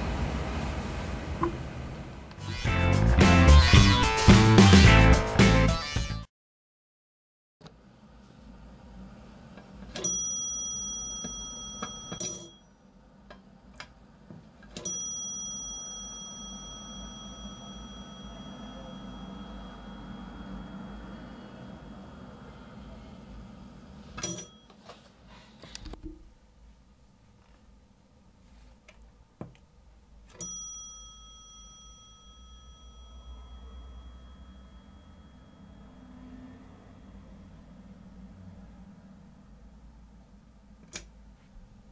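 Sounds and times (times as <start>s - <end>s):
low steady hum: 7.7s - 41.9s
elevator chime dinging: 10.0s - 12.6s, 14.8s - 21.8s, 30.4s - 37.6s.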